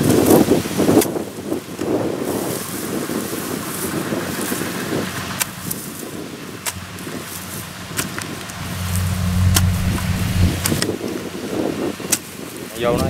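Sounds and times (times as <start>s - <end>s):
harvester engine droning: 5.1s - 11.2s.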